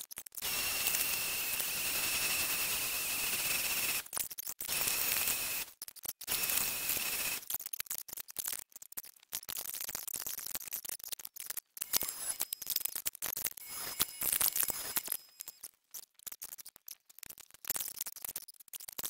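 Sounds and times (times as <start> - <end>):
orbital sander hiss and whine: 0.4 - 4.0, 6.3 - 7.4
machine sound bursts: 0.4 - 4.1, 4.7 - 5.7, 6.3 - 7.5, 11.8 - 12.8, 13.6 - 15.6.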